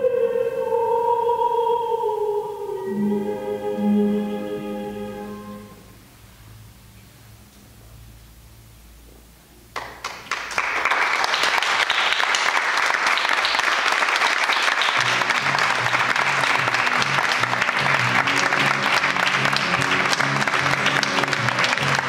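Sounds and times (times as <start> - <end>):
music with low repeating notes: 2.7 - 5.9
audience applauding: 9.8 - 22.0.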